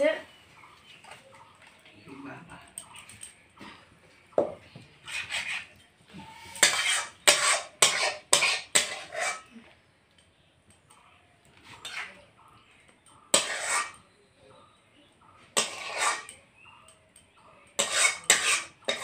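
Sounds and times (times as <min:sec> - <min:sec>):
metal spatula scraping metal pan: 0:05.0 - 0:09.5, 0:11.7 - 0:12.2, 0:13.3 - 0:14.0, 0:15.6 - 0:16.4, 0:17.8 - 0:19.0.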